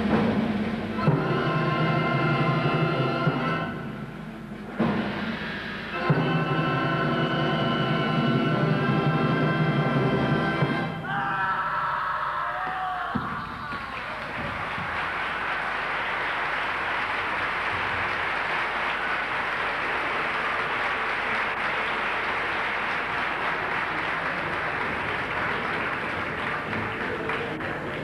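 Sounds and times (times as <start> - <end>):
audience applauding: 12.4 - 28.0.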